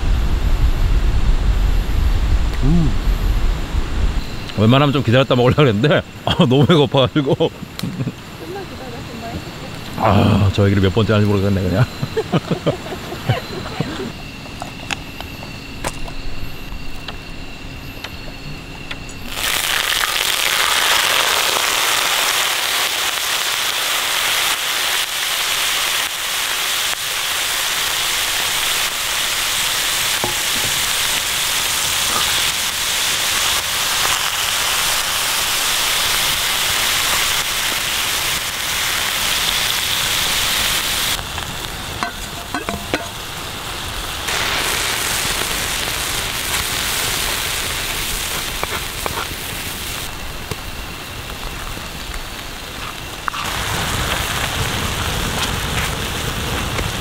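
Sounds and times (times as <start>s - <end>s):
food sizzling in a hot pan: 19.2s - 57.0s.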